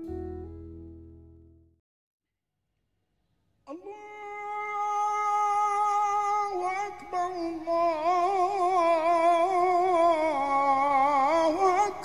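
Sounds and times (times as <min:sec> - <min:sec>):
solo voice singing held notes: 0:03.7 - 0:12.0.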